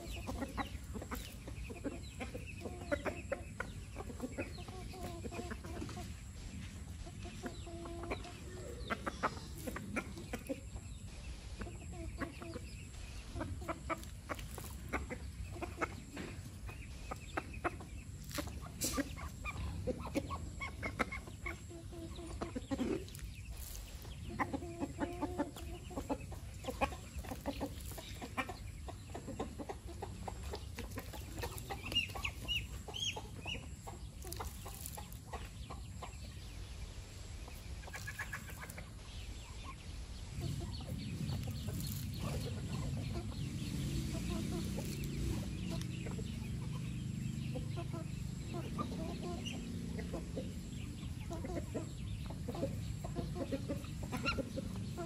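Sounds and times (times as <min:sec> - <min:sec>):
chickens clucking: 0:00.0 - 0:55.0
chicks peeping: 0:00.0 - 0:55.0.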